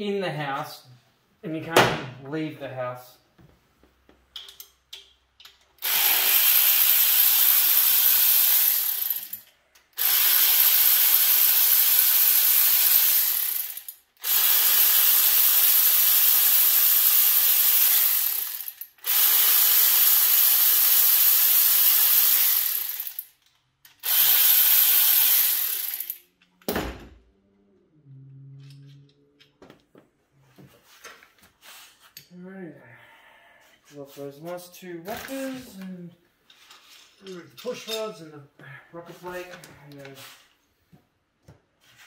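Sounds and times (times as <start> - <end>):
tool handling clicks: 4.3 - 5.7
power ratchet running: 5.8 - 9.4, 10.0 - 23.3, 24.0 - 26.2.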